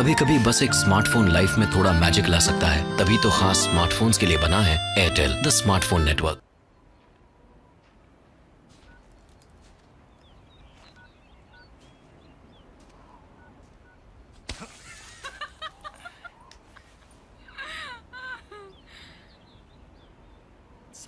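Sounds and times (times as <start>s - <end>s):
falling cries: 17.4s - 19.3s.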